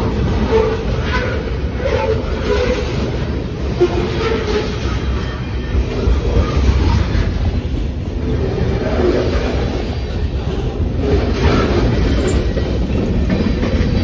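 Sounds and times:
steel wheels rumbling on rail: 0:00.0 - 0:14.0
train cars clattering: 0:00.0 - 0:14.0.

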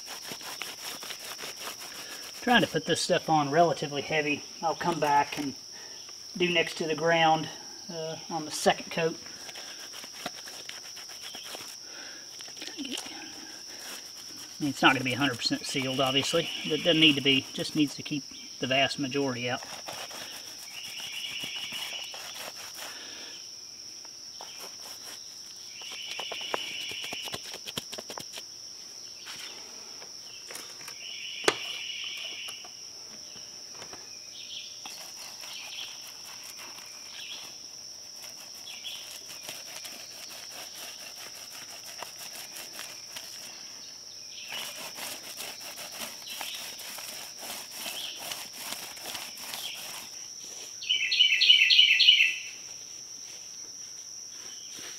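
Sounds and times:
paintbrush scrubbing concrete: 0:00.0 - 0:05.4, 0:08.3 - 0:23.3, 0:24.4 - 0:28.4, 0:34.8 - 0:43.7, 0:44.4 - 0:50.7
insects droning: 0:00.0 - 0:54.9.

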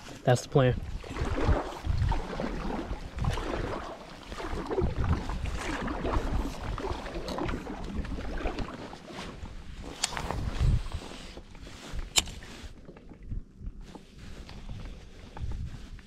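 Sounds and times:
paddle splashing in water: 0:00.8 - 0:13.2.

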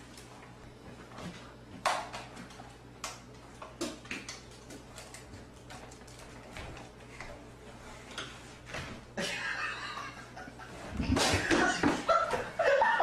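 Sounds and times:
person laughing: 0:09.2 - 0:13.0.

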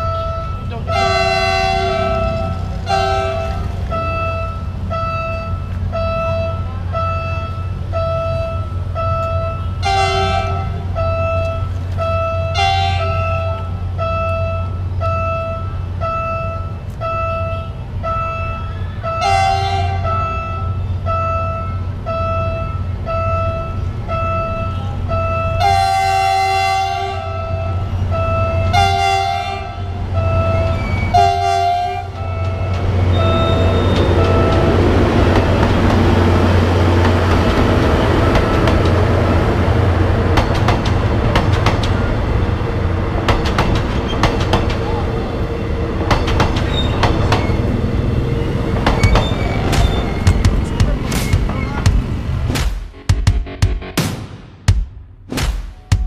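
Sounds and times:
locomotive horn blasts: 0:00.0 - 0:39.4
locomotive engine rumble: 0:00.0 - 0:54.1
warning signal ringing: 0:27.3 - 0:40.0.

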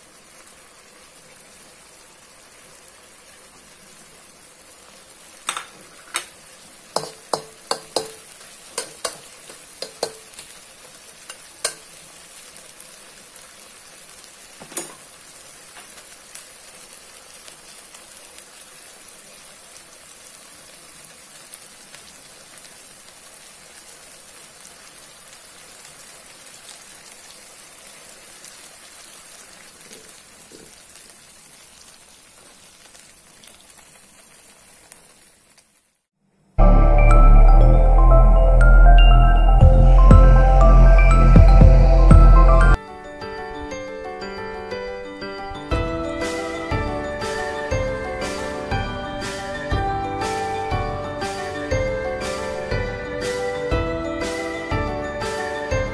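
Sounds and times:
food sizzling in a wok: 0:00.0 - 0:37.3, 0:44.3 - 0:55.9
spatula knocking on a wok: 0:07.0 - 0:10.4.

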